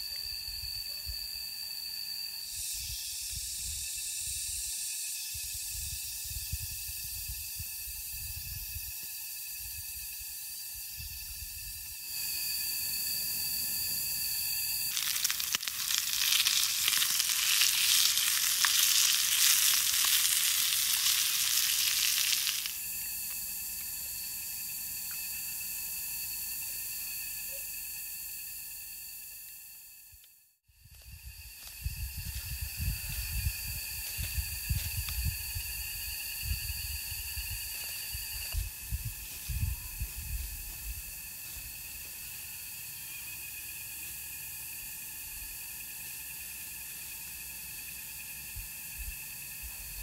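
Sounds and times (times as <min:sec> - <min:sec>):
food sizzling in frying pan: 0:14.9 - 0:22.8.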